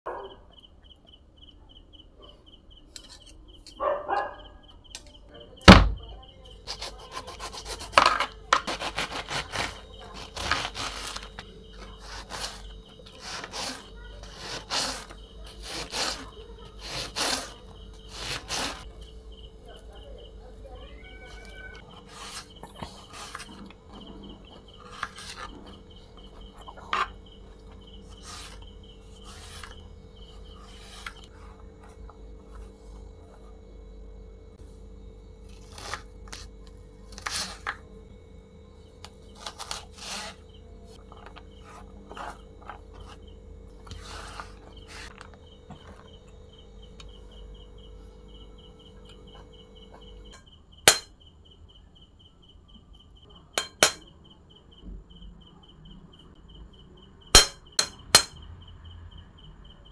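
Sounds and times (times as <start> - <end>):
steady hum: 4.5 - 52.0
knife cutting on wooden board: 6.7 - 11.4, 12.0 - 18.8, 39.4 - 40.4.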